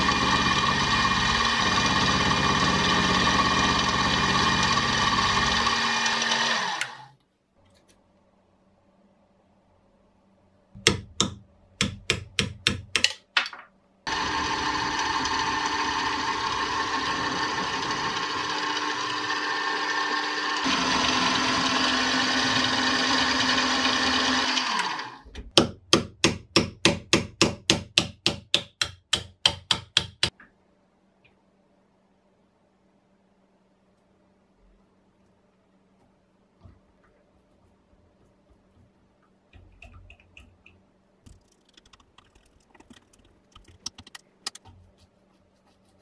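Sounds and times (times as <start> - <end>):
drilling machine running: 0.0 - 7.1, 14.1 - 25.2.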